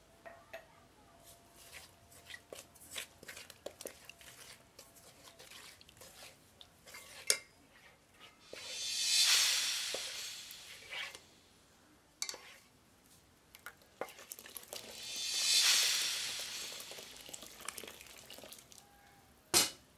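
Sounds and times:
wooden spoon scraping saucepan: 0:01.6 - 0:08.8, 0:12.2 - 0:12.7
rushing noise: 0:08.5 - 0:11.4, 0:14.8 - 0:17.9.

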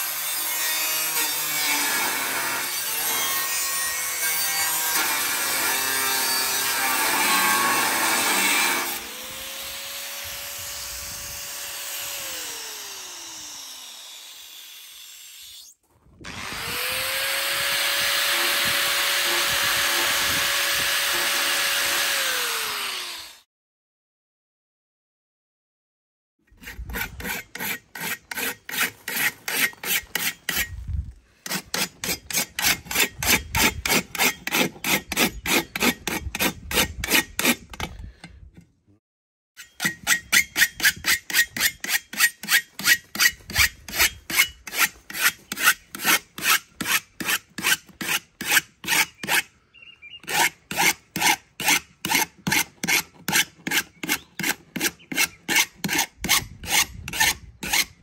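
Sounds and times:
hand tool rasping: 0:26.5 - 0:38.5, 0:39.6 - 0:49.5, 0:50.2 - 0:58.0.

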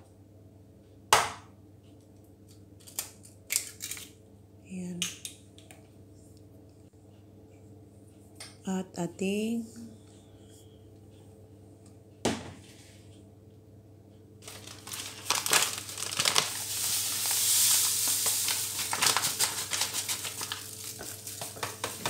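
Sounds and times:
bag crinkling and rustling: 0:14.4 - 0:22.0
sugar pouring into a bowl: 0:15.1 - 0:22.0.

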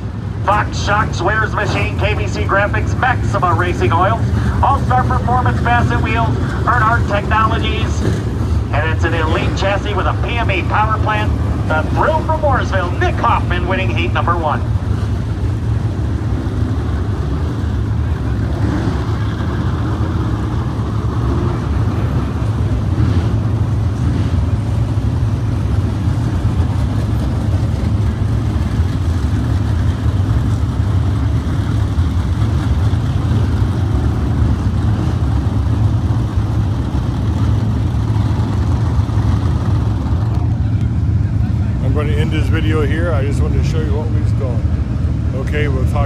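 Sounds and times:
race car engines: 0:00.0 - 0:46.0.

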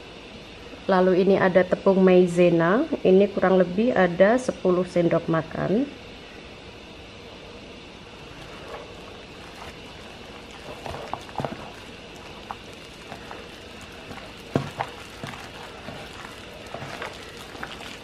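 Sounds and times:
wet squelches of mixing chicken: 0:08.3 - 0:18.0.

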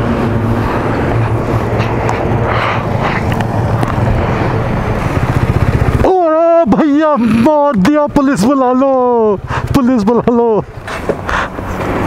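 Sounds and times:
motorcycle engine running: 0:00.0 - 0:12.0
wind and road noise: 0:00.0 - 0:12.0.

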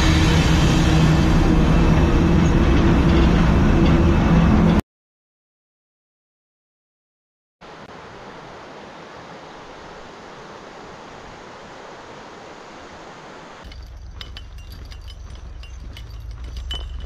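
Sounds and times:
low rumble: 0:00.0 - 0:04.8, 0:13.7 - 0:17.0.

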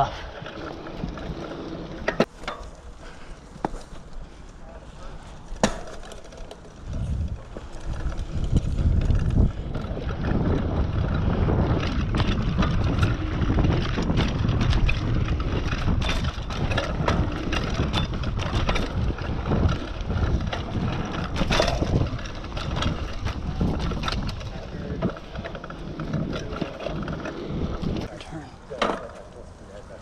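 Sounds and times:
bike clicks and rattles: 0:00.0 - 0:28.1
tyre noise on gravel: 0:00.0 - 0:28.1
wind buffeting microphone: 0:06.7 - 0:28.1.

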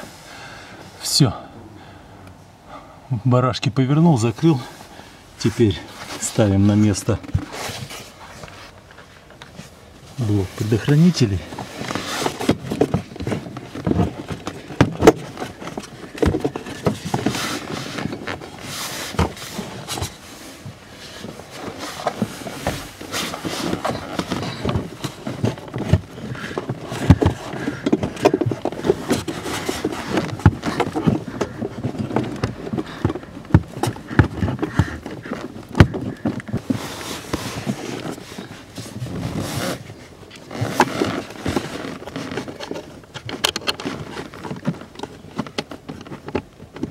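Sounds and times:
plastic scraping on plastic: 0:05.9 - 0:09.7, 0:10.3 - 0:46.9
plastic knocks and clicks: 0:23.8 - 0:36.6.

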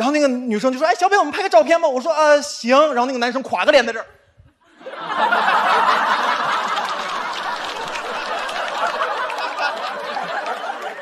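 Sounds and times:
audience laughing: 0:04.6 - 0:11.0.

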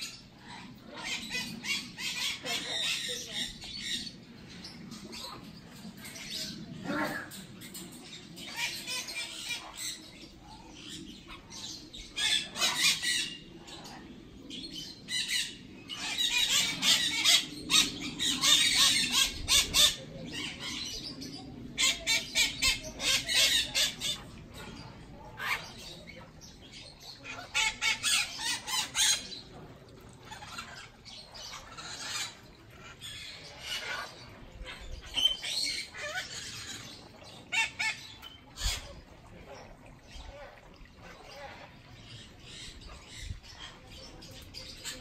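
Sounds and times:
parrots squawking: 0:08.4 - 0:13.4, 0:15.1 - 0:20.9, 0:27.2 - 0:29.4, 0:30.2 - 0:38.9.

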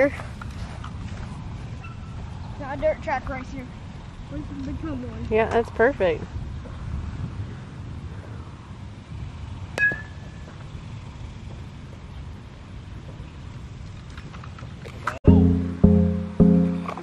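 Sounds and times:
wind rumbling on microphone: 0:03.8 - 0:09.7
music: 0:15.3 - 0:17.0.

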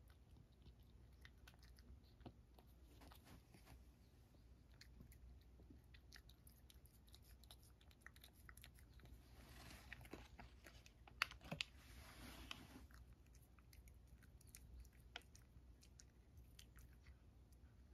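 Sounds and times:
cat crunching treats: 0:04.6 - 0:17.6.

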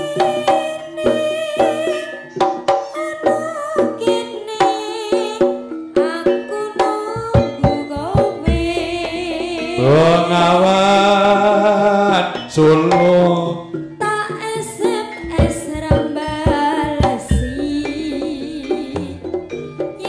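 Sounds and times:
deep low drum stroke: 0:07.2 - 0:10.6, 0:15.2 - 0:19.5
live ensemble music: 0:07.2 - 0:20.0
quick drum strokes: 0:15.2 - 0:20.0.

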